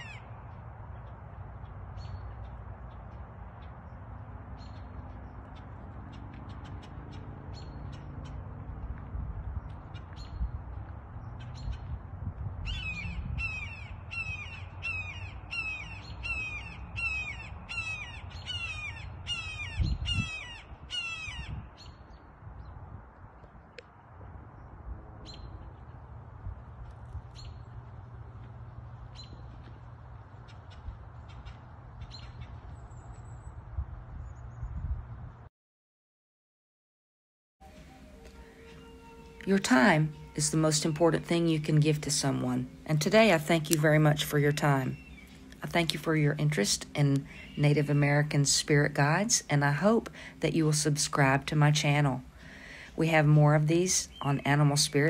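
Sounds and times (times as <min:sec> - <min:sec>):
bird giving harsh falling calls: 0:00.0 - 0:00.4, 0:12.7 - 0:21.9, 0:37.8 - 0:39.5
small birds chirping: 0:00.0 - 0:08.5, 0:09.5 - 0:12.0, 0:12.6 - 0:22.8, 0:27.2 - 0:27.8, 0:29.0 - 0:34.9, 0:38.3 - 0:50.8, 0:51.6 - 0:55.0
steady low rumble: 0:00.0 - 0:35.5, 0:39.3 - 0:55.0.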